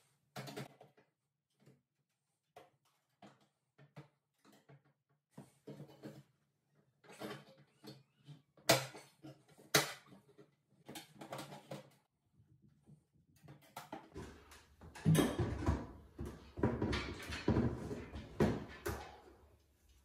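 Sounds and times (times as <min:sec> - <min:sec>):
knocking and rattling: 0:13.4 - 0:19.5.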